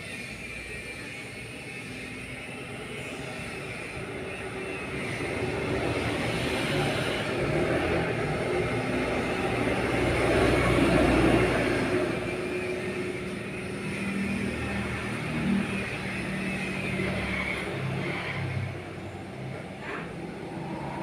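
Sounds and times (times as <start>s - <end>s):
vehicle engine passing: 14.1s - 21.0s.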